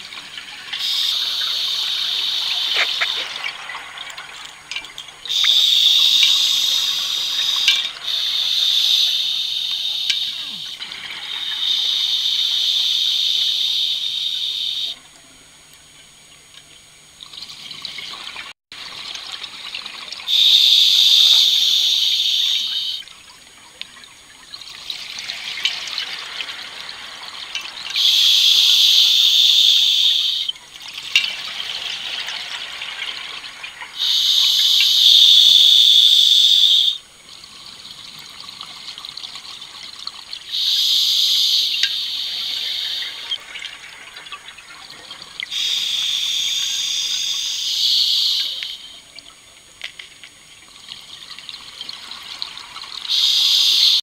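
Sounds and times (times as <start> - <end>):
soft bubbling: 0.0 - 12.4
regulator hissing breaths: 0.8 - 3.4, 5.3 - 15.0, 20.3 - 23.0, 27.9 - 30.5, 34.0 - 37.0, 40.5 - 43.5, 45.5 - 49.0, 53.1 - 54.0.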